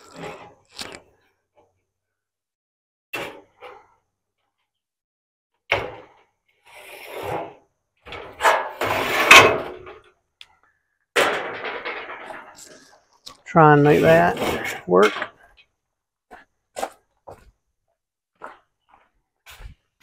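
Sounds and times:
metal panel scraping: 6.7s - 10.0s, 13.6s - 15.2s
sheet metal knocks and bangs: 11.2s - 12.5s.

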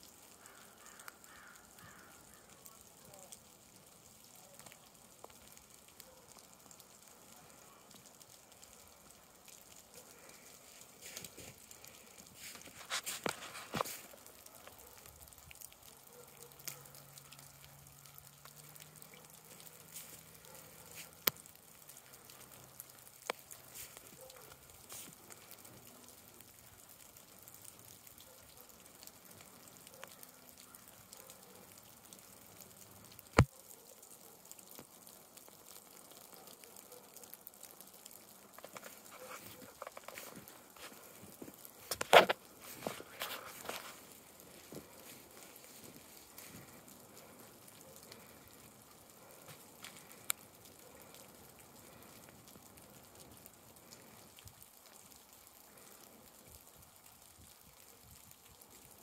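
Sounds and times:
faint steady hiss: 0.0s - 59.0s
melting snow dripping: 0.0s - 59.0s.

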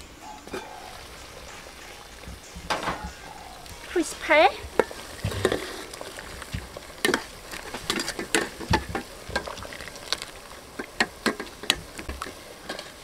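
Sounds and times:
water boiling hard in a pot: 0.0s - 13.0s
metal ladle scraping and clinking: 4.7s - 6.4s, 7.0s - 8.7s.

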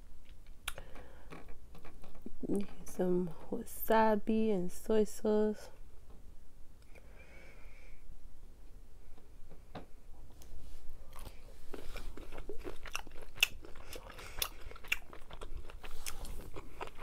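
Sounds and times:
person chewing shrimp: 11.0s - 17.0s.

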